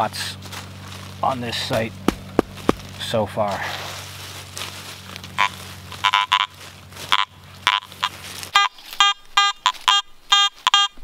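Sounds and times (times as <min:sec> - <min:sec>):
metal detector short beeps: 0:08.6 - 0:11.0.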